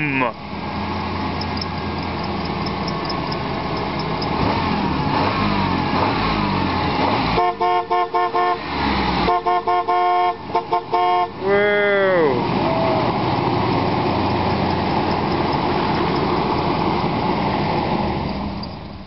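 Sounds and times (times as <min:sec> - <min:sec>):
car horn honking: 0:07.3 - 0:13.2.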